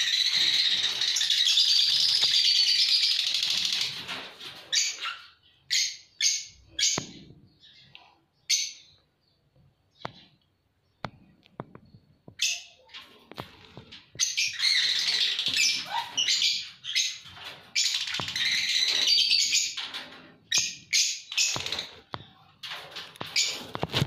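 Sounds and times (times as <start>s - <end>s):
lovebirds chirping and squawking: 0.0s - 24.0s
sharp clicks and knocks: 10.0s - 12.4s.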